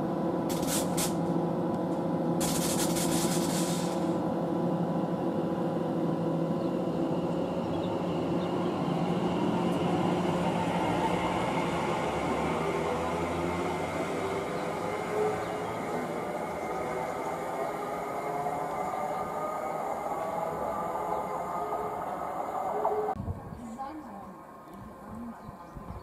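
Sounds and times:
electric train hum: 0.0s - 26.0s
short bursts of hiss: 0.5s - 1.2s, 2.4s - 4.1s.

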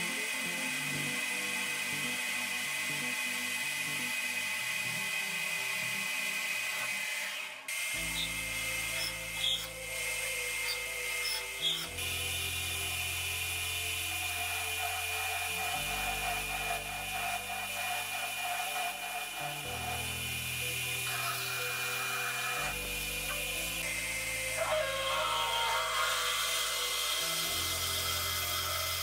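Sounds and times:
drill boring into metal: 0.0s - 29.0s
metal lathe cutting steel: 0.0s - 29.0s
high whine: 19.4s - 29.0s.

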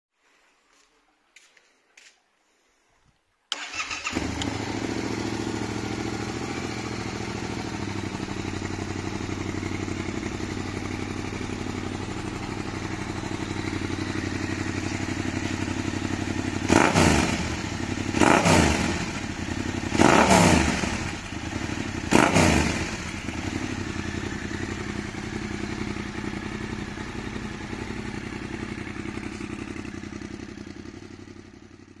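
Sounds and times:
motorcycle engine idling and revving: 3.6s - 32.0s.

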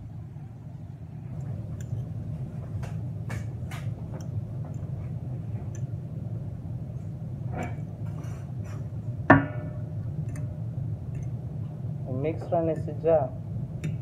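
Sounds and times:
steady low hum: 0.0s - 14.0s
metal fork clicking against bowl: 13.8s - 14.0s.

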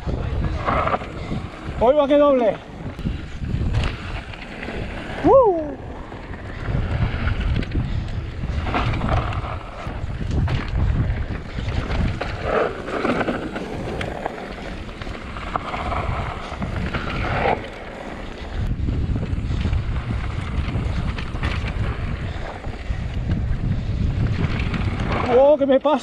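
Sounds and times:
bike tyres rolling on dirt: 0.0s - 26.0s
tyres sliding through dirt: 0.0s - 26.0s
wind buffeting microphone: 0.0s - 26.0s
bike rattling clicks: 6.1s - 25.5s.

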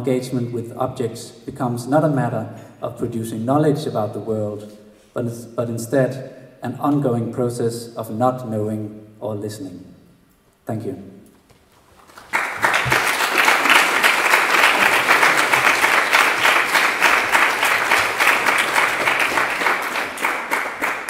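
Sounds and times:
audience applauding: 12.0s - 21.0s.

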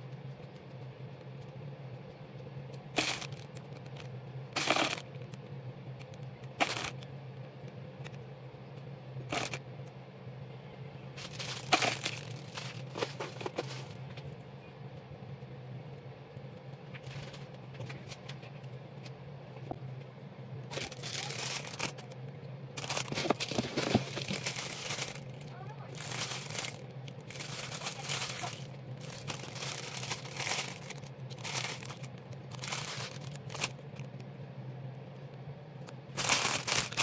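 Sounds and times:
steady low hum: 0.0s - 37.0s
plastic bag crinkling: 3.0s - 5.4s, 6.6s - 7.0s, 9.3s - 9.6s, 11.2s - 14.0s, 20.7s - 22.2s, 22.8s - 34.2s, 36.0s - 37.0s.

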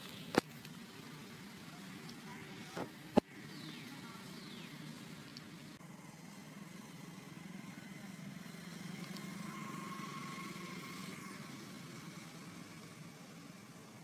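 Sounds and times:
faint thin whine: 0.0s - 14.0s.

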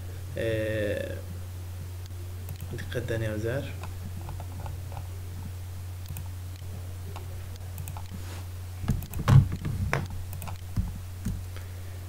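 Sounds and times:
low electrical hum: 0.0s - 12.0s
computer mouse clicks: 2.0s - 2.9s, 3.8s - 5.1s, 6.0s - 8.2s, 8.9s - 11.4s.

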